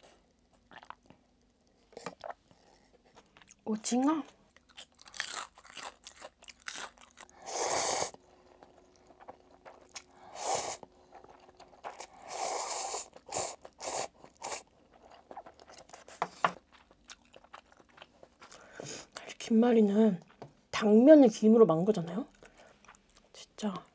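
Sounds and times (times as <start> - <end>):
crunchy chewing: 4.5 - 19.2
slurping noodles: 7.4 - 8.2, 11.8 - 14.7.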